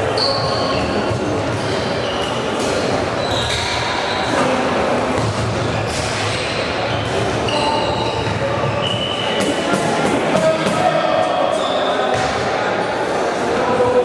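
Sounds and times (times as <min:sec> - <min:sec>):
shoes squeaking on court floor: 0:00.0 - 0:09.6
murmur of crowd: 0:00.0 - 0:14.0.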